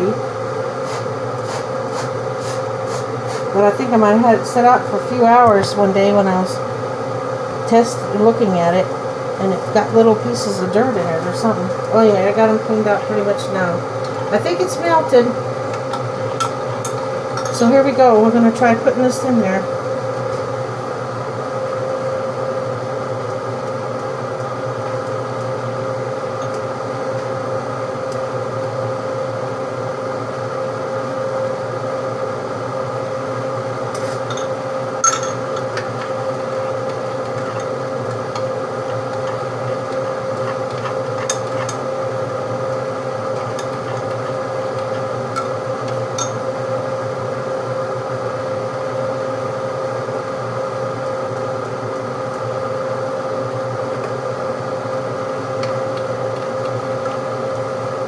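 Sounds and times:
electric fan humming: 0.0s - 58.0s.

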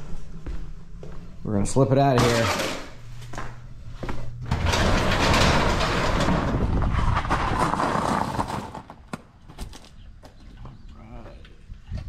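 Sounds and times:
garage door rattling open: 2.1s - 3.0s, 4.4s - 9.8s
garage door clicks: 4.4s - 6.8s.

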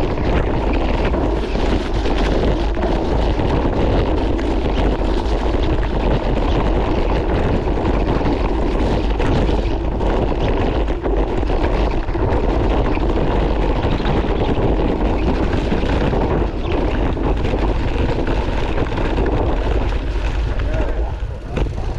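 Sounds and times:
bike tyres rumbling on trail: 0.0s - 21.9s
wheels knocking on stones: 0.0s - 21.9s
wind buffeting microphone: 0.0s - 21.9s.

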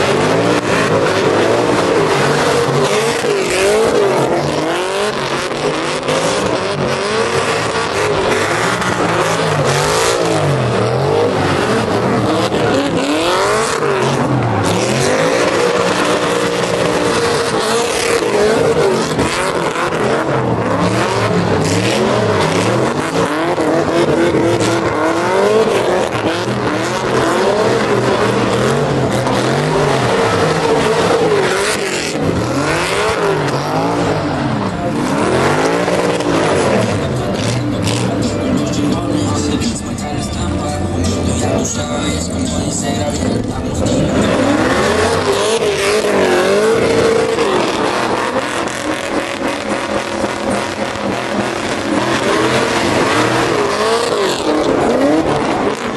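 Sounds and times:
truck engine revving: 0.0s - 55.9s.

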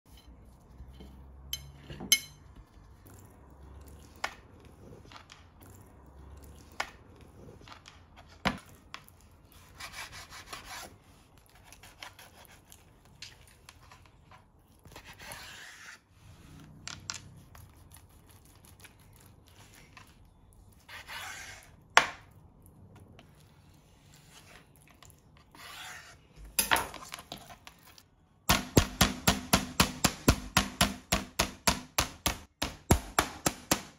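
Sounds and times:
meat mallet pounding: 28.5s - 33.9s.

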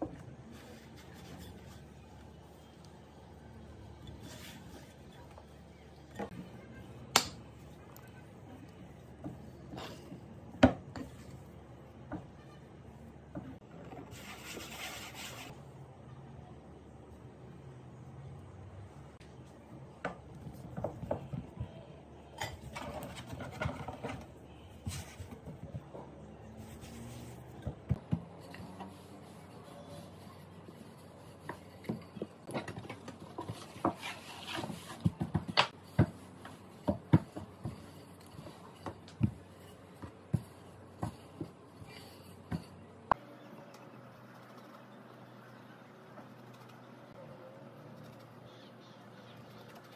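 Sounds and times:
dough rubbing and scraping: 0.1s - 6.8s, 7.5s - 15.6s, 22.3s - 43.2s
hand rubbing flour on countertop: 14.1s - 15.5s, 26.5s - 27.5s.

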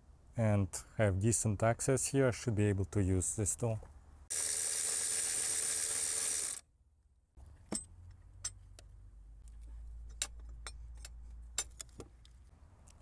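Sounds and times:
power tool running: 4.3s - 6.6s.

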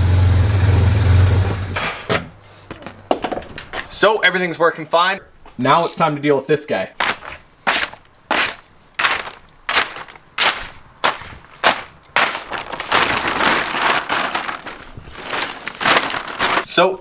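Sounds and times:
plastic bag crackling: 7.0s - 16.8s.

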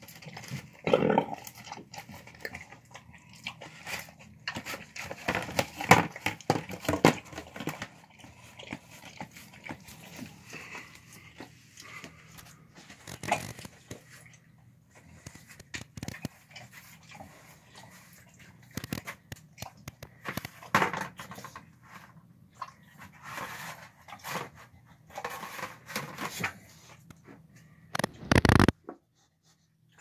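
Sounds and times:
dog chewing and smacking: 1.4s - 14.4s.

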